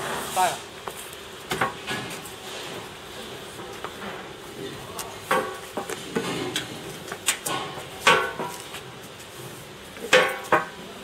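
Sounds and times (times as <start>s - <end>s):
metallic clanks and knocks: 5.3s - 8.6s.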